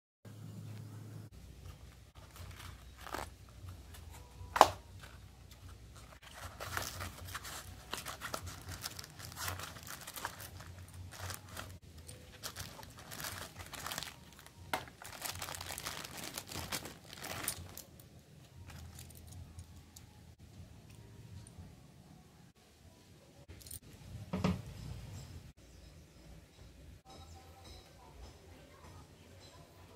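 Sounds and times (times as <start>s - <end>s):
cardboard and plastic packaging rustling: 1.6s - 18.0s, 18.6s - 19.2s.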